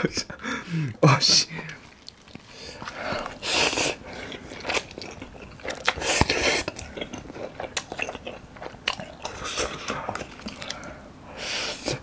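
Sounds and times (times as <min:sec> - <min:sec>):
slurping noodles: 0:01.8 - 0:08.1.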